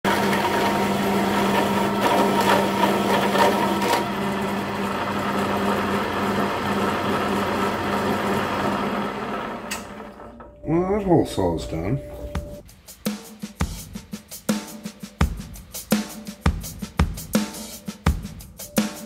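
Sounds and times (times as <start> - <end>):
motor hum: 0.1 - 10.6
hole saw grinding metal: 0.2 - 10.4.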